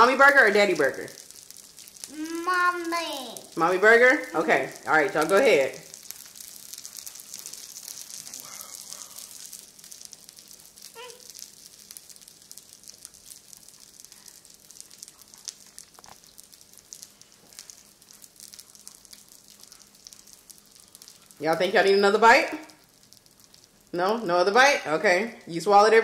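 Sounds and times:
crackling hiss: 0.0 - 26.0
faint voice: 2.1 - 3.3.

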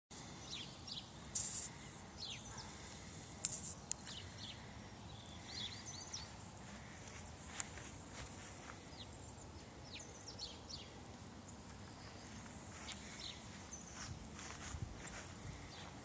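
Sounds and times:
outdoor hiss: 0.1 - 16.0
small birds chirping: 0.2 - 16.0
scuffing noises: 6.7 - 8.9, 12.3 - 16.0.

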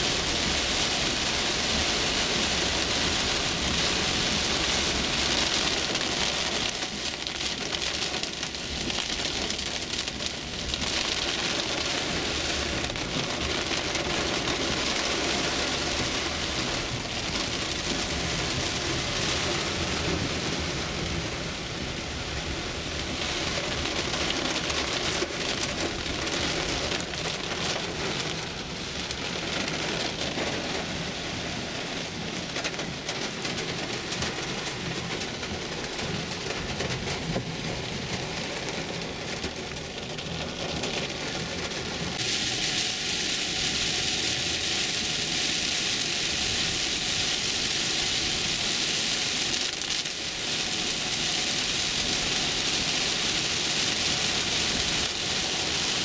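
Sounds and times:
heavy rain on car windshield: 0.0 - 56.0.

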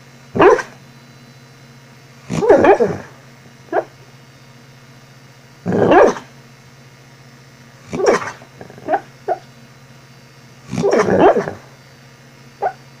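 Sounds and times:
dog barking in sleep: 0.3 - 0.8, 2.3 - 4.0, 5.6 - 6.4, 7.8 - 9.5, 10.7 - 11.8, 12.6 - 12.9
dog yipping: 0.4 - 0.7, 5.9 - 6.2, 12.6 - 12.8.

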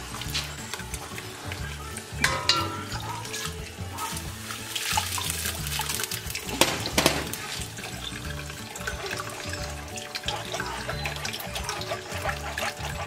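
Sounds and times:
liquid trickling through a sieve: 0.0 - 13.0
spoon clinking against strainer: 2.0 - 4.2.

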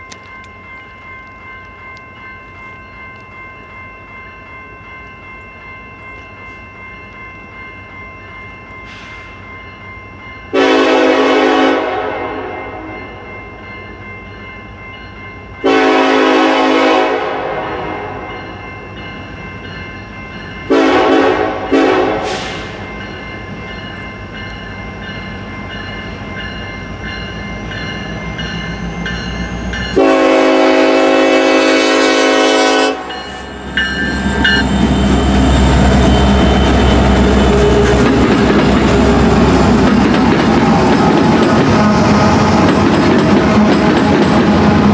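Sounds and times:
heavy train rumble: 0.0 - 44.9
locomotive air horn blasts: 10.5 - 12.9, 15.6 - 18.2, 20.7 - 22.8, 30.0 - 33.2
wheel clatter on rails: 34.1 - 44.9.

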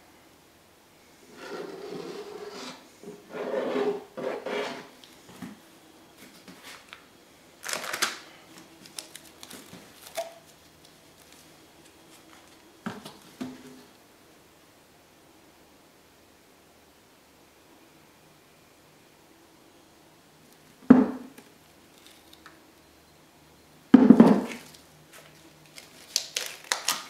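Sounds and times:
paint bottles rubbing and knocking: 1.3 - 4.9.

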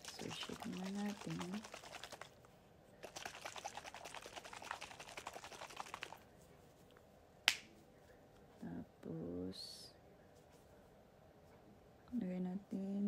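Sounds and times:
plastic bottle rattling slosh: 0.0 - 6.2.

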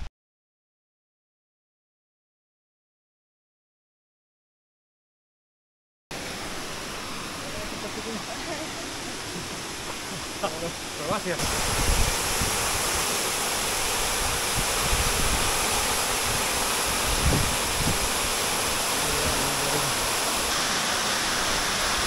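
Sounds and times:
waterfall rushing: 6.1 - 22.0.

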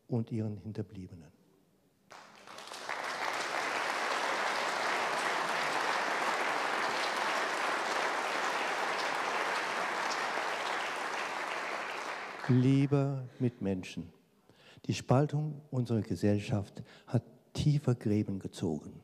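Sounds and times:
audience applause: 2.1 - 13.0.

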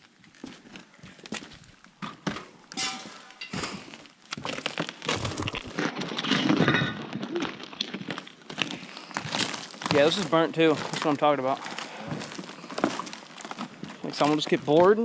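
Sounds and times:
footsteps crunching on debris: 0.0 - 15.0
glass clinks and crackles: 2.7 - 4.0, 6.6 - 7.2.

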